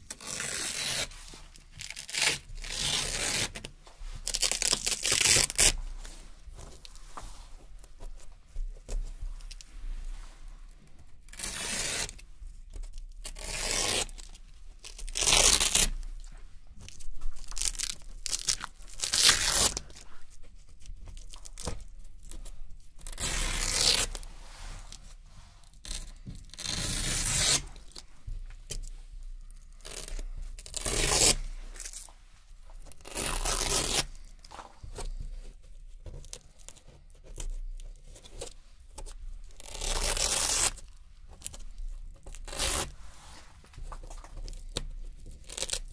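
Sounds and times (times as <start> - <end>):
velcro strips ripping: 0.0 - 5.8, 11.3 - 12.2, 13.2 - 16.1, 17.4 - 20.0, 23.0 - 24.3, 25.8 - 28.1, 29.8 - 32.1, 32.9 - 34.4, 39.5 - 43.0, 44.2 - 45.9.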